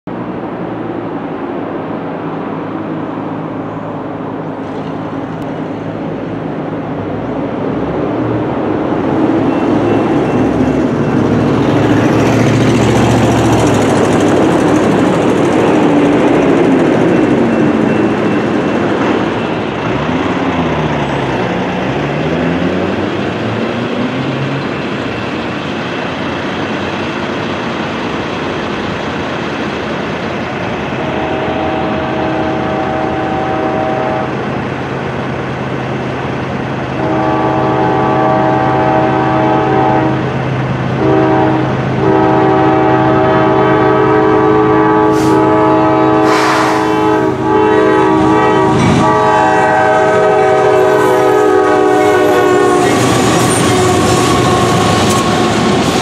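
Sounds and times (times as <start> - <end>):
vehicle engines: 0.1 - 56.0
crossing bell dinging: 14.8 - 21.8.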